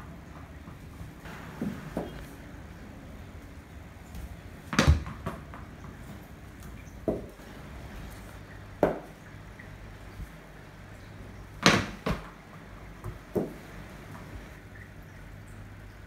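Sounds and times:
ball bouncing on tiled floor: 1.6s - 2.3s, 4.1s - 7.4s, 8.8s - 9.2s, 11.6s - 12.4s, 13.0s - 14.2s
cricket bat hitting ball: 4.7s - 5.4s, 11.6s - 12.3s.

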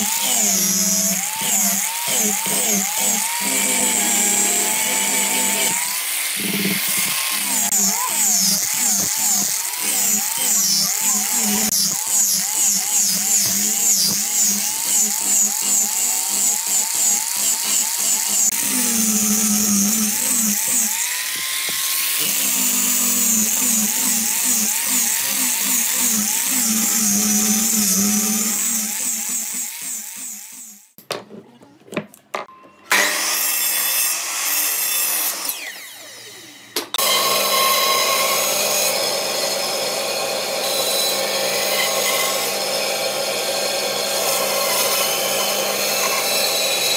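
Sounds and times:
band saw running: 0.0s - 30.8s, 32.9s - 46.9s
angle grinder sanding wood: 0.0s - 30.9s.

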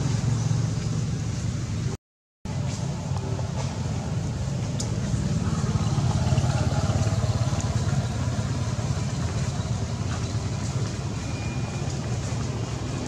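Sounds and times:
engine idling: 2.6s - 13.0s.

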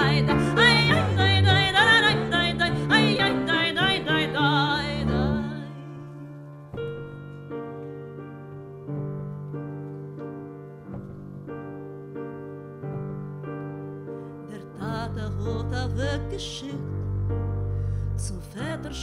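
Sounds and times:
woman singing with vibrato: 0.0s - 5.8s, 18.2s - 19.0s
piano chords: 0.0s - 19.0s.

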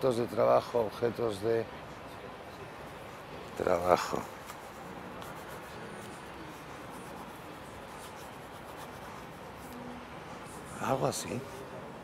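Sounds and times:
steady background hiss: 0.0s - 12.0s
pen scratching on paper: 4.3s - 9.8s.

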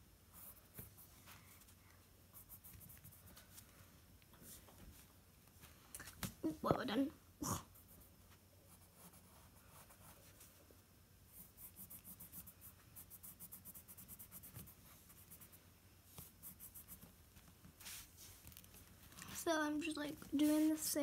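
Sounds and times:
pencil scratching on paper: 2.4s - 3.4s, 8.7s - 10.5s, 11.3s - 15.6s, 16.2s - 17.1s.

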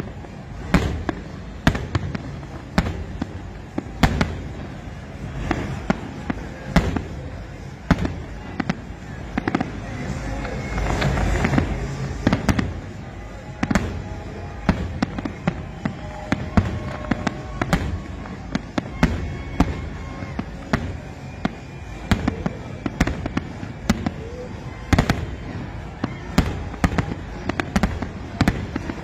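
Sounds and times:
fireworks bangs: 0.0s - 29.0s
fireworks rumble and crackle: 0.0s - 29.0s.

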